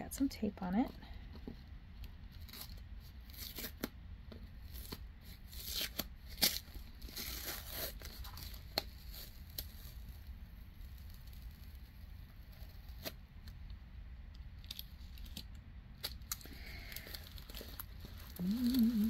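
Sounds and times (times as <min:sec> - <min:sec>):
tape peeling off package: 0:02.3 - 0:13.6
plastic wrapping crinkling: 0:04.6 - 0:13.6, 0:14.6 - 0:19.0.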